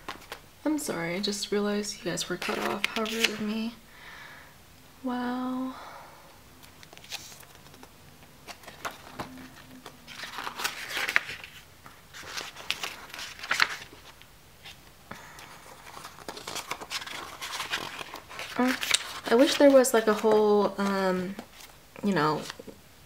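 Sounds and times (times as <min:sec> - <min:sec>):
book pages turning: 0:00.0 - 0:00.4, 0:02.3 - 0:03.5, 0:06.6 - 0:22.7.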